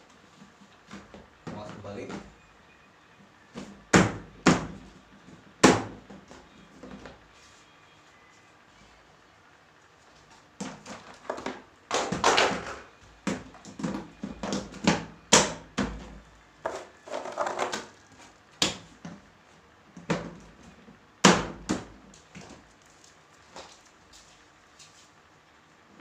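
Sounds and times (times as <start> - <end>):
plastic panels knocking and scraping: 10.6 - 17.9.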